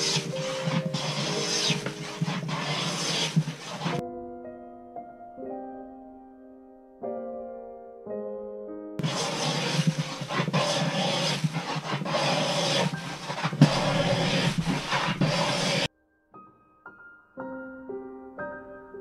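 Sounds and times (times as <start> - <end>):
hand plane shaving wood: 0.0 - 4.0, 9.0 - 15.9
soft piano music: 0.0 - 10.3, 13.6 - 19.0.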